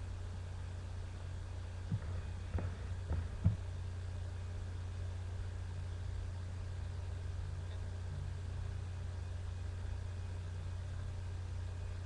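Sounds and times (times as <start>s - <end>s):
cat purring: 1.9s - 3.7s
soft bumps: 1.9s - 3.7s.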